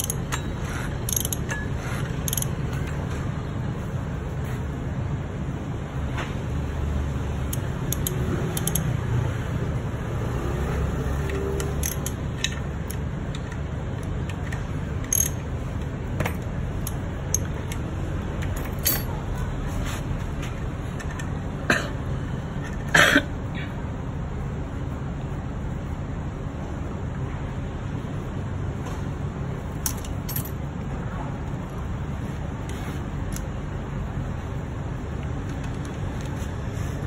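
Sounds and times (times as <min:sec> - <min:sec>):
metal tool clicks and taps: 0:00.0 - 0:03.0, 0:07.5 - 0:09.0, 0:11.2 - 0:19.1
low background hum: 0:00.0 - 0:37.0.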